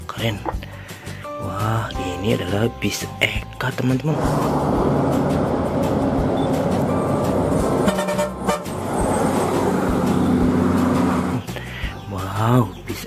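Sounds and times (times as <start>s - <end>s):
road noise: 3.8s - 12.8s
bus horn blasts: 6.4s - 11.3s.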